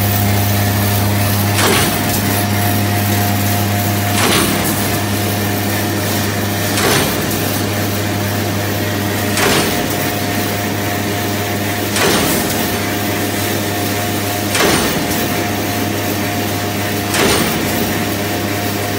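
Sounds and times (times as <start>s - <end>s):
machine hum and whirr: 0.0s - 18.9s.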